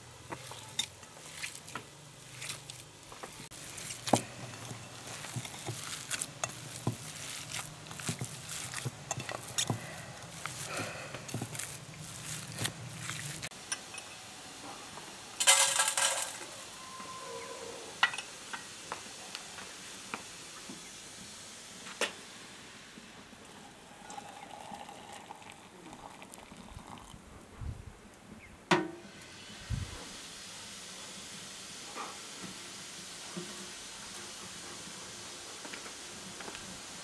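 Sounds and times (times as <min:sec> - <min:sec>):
faint hiss: 0:00.0 - 0:37.0
metal pots clinking: 0:03.8 - 0:10.6, 0:15.4 - 0:16.6
water pouring into pot: 0:23.5 - 0:27.2.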